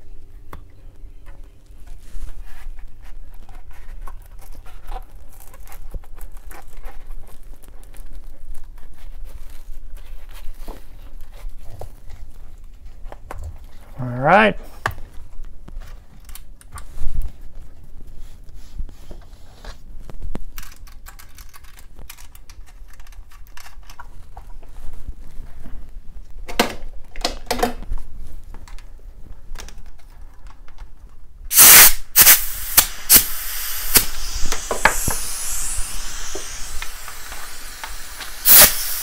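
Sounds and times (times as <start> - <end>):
compressed air hissing: 31.5 - 39.0.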